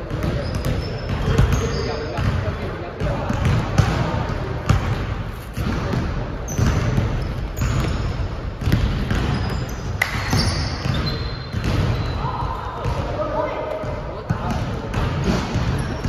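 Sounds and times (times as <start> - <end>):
sneaker squeaks: 0.1 - 2.5, 6.4 - 13.0, 15.2 - 16.0
basketball bouncing on hardwood: 0.1 - 12.2.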